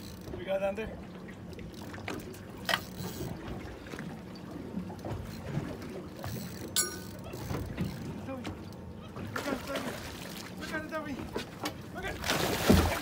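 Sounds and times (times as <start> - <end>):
water lapping against hull: 0.0 - 13.0.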